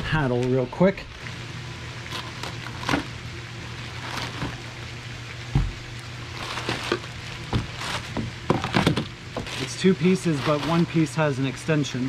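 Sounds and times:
plastic wrapping crinkling: 0:02.0 - 0:04.8, 0:06.2 - 0:11.2.

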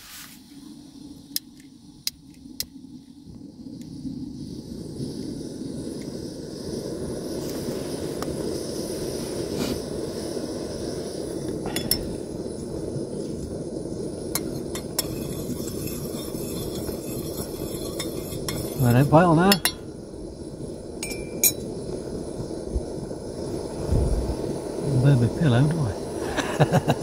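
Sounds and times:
camping stove burning roar: 0:00.0 - 0:27.0
spoon clinking on metal saucepan: 0:19.5 - 0:19.8, 0:21.0 - 0:21.6.

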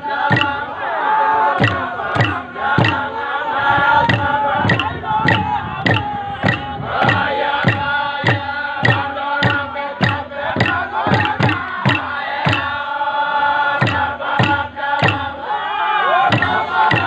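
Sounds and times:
steady struck beat: 0:00.0 - 0:00.9, 0:01.5 - 0:12.9, 0:13.8 - 0:15.4, 0:16.3 - 0:17.0
men chanting together: 0:00.0 - 0:17.0.

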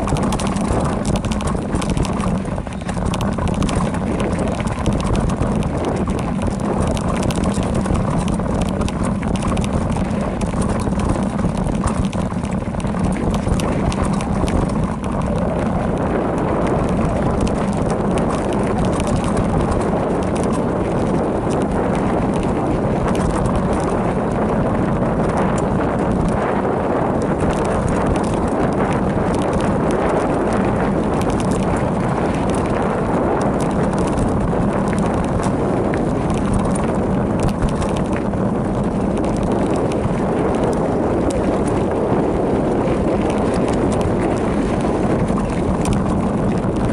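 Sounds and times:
bike rattling clicks: 0:00.0 - 0:46.9.

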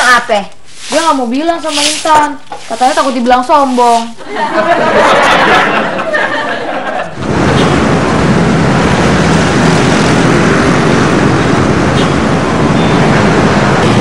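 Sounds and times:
passing motor vehicles rumbling: 0:04.3 - 0:14.0.

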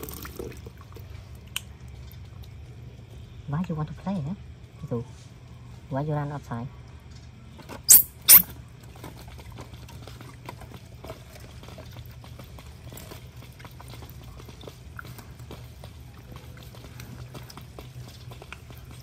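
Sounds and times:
baby monkey squeaks: 0:07.9 - 0:08.5.

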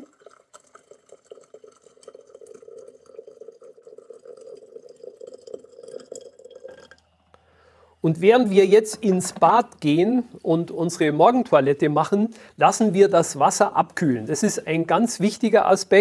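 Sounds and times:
water pouring into teapot: 0:00.0 - 0:07.1.

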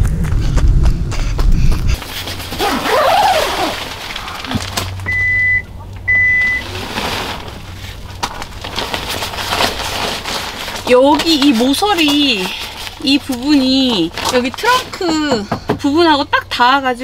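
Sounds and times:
tent fabric rustling: 0:02.0 - 0:05.2, 0:06.3 - 0:14.8.

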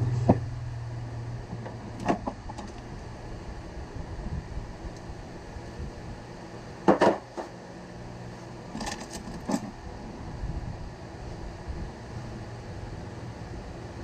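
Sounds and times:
low hum: 0:00.0 - 0:06.8.

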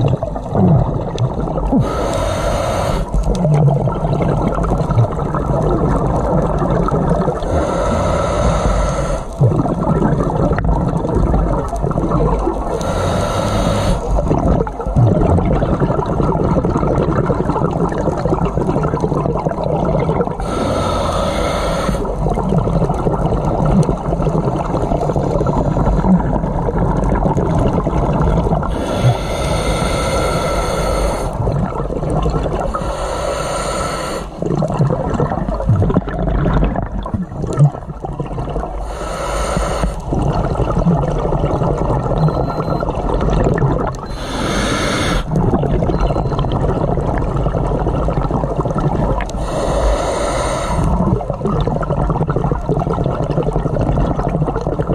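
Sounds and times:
exhaled bubbles underwater: 0:00.0 - 0:54.9.

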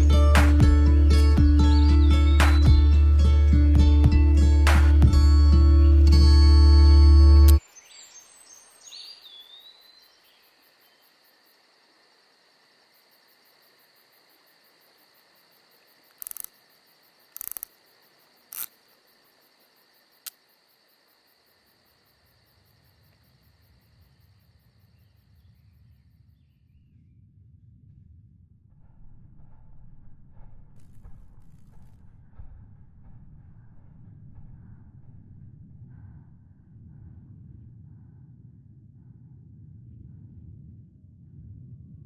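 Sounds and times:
crickets chirping: 0:05.5 - 0:26.8
sharp clicking noises: 0:16.0 - 0:16.6, 0:17.3 - 0:17.8, 0:18.4 - 0:18.8, 0:20.2 - 0:20.5
low rumble: 0:26.9 - 0:42.0.

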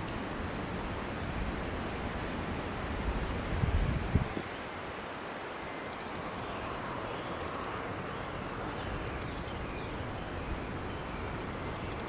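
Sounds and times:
wind on microphone: 0:03.0 - 0:04.7.

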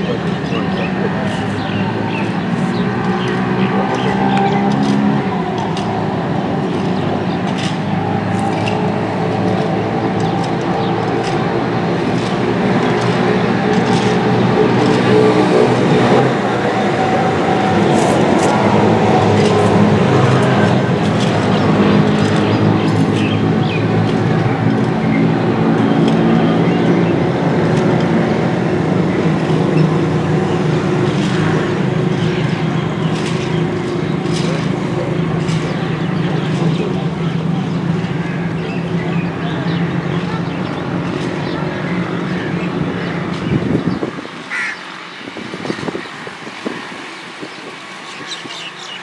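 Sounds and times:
engine drone: 0:00.0 - 0:49.0.

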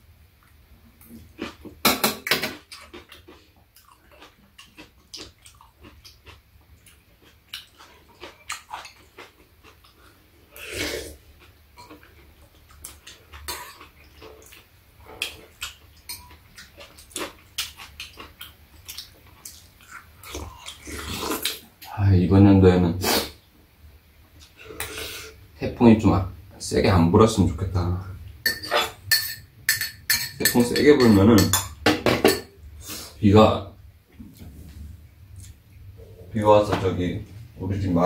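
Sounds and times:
chewing: 0:02.6 - 0:10.7, 0:11.4 - 0:21.6
spoons and chopsticks clicking bowls: 0:28.5 - 0:32.4.

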